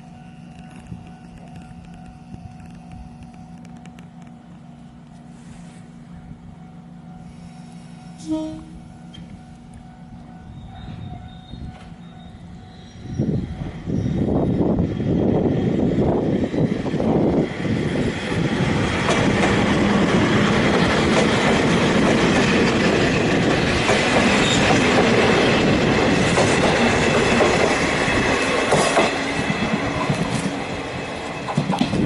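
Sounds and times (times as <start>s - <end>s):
electric train passing: 0.0s - 32.0s
train wheel whine: 0.0s - 32.0s
clacks over rail joints: 19.0s - 30.6s, 31.2s - 32.0s.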